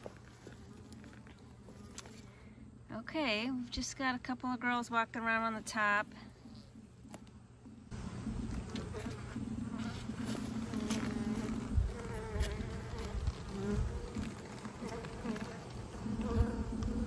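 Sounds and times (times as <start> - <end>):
honeybee colony humming: 0.0 - 3.1, 4.6 - 17.0.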